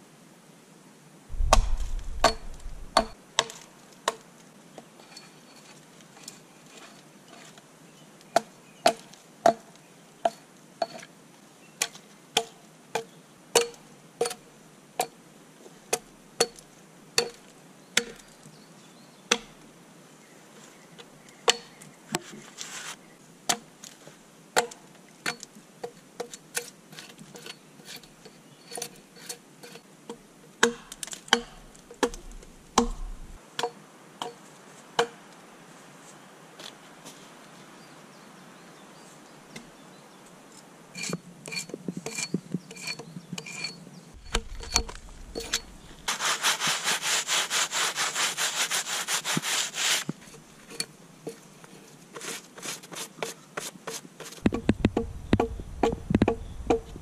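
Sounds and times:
axe chopping log: 1.3s - 3.6s, 30.6s - 33.4s, 44.2s - 46.1s, 54.4s - 57.0s.

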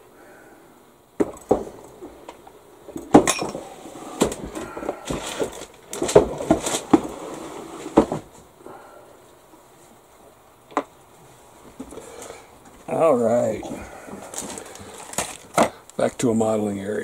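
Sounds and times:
tools and boxes knocking and clattering: 1.2s - 7.1s.

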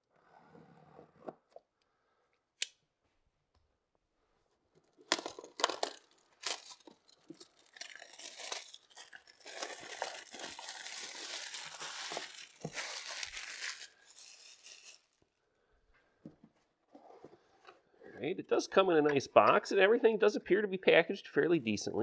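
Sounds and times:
plastic film crinkling: 5.1s - 15.4s
plastic shrink wrap tearing: 5.2s - 15.4s.

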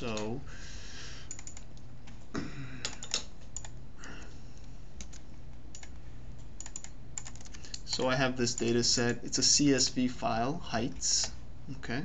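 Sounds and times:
keyboard and mouse clicking: 0.0s - 0.3s, 1.3s - 1.9s, 2.8s - 3.8s, 5.0s - 6.0s, 6.6s - 8.8s
steady low hum: 0.0s - 12.0s.

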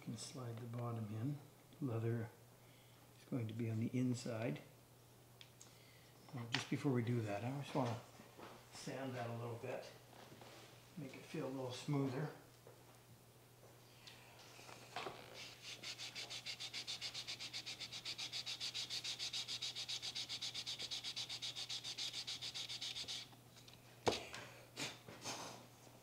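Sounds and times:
sandpaper rasping on wood: 15.4s - 23.3s.

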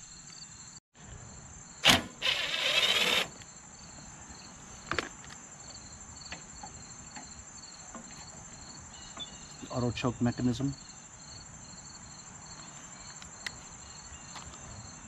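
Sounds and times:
insects chirring: 0.0s - 15.0s
cordless drill running: 1.8s - 3.3s.

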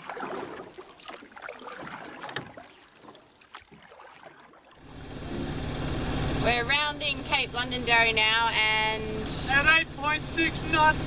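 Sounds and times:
water sloshing and bubbling: 0.0s - 5.0s
sharp underwater pops and clicks: 0.3s - 3.9s.

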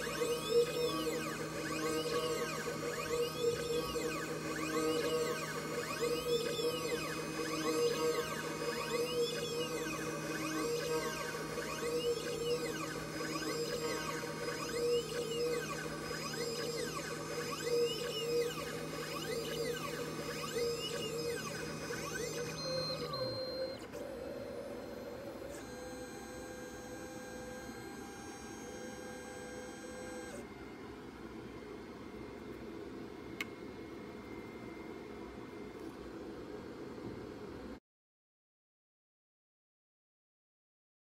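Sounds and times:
spindle humming: 0.0s - 30.4s
stepper motors whining: 0.0s - 30.4s.

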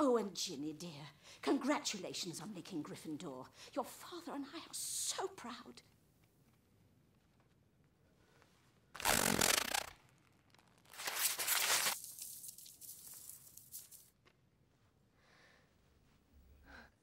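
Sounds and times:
paper tearing: 9.0s - 14.0s
rustle of falling paper shreds: 10.9s - 14.0s.

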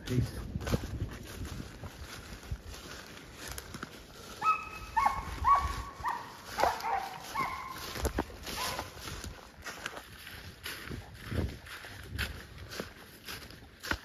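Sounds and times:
dog barking: 4.4s - 9.0s.

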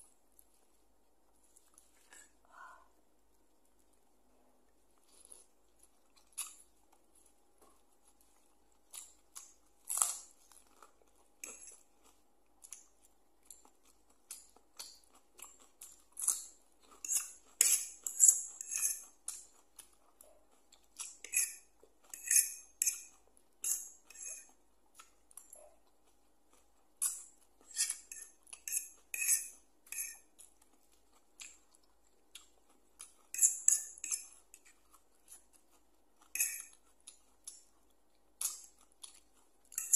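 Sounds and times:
slurping and chewing noodles: 4.7s - 39.9s
fork scraping on plate: 17.0s - 19.1s, 21.0s - 24.5s, 27.0s - 30.3s, 33.2s - 34.8s, 36.2s - 36.8s.

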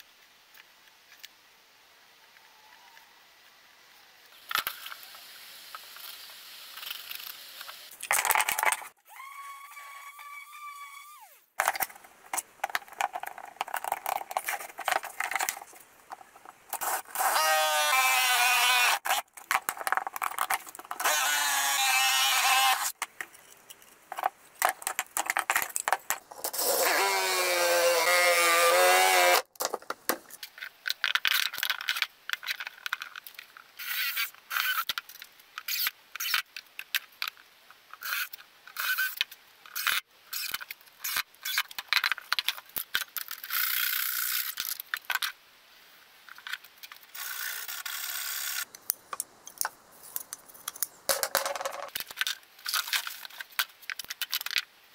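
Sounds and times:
woodworking power tool: 17.2s - 19.0s, 21.0s - 22.9s, 26.6s - 29.4s
wooden pieces knocking: 49.1s - 52.2s.

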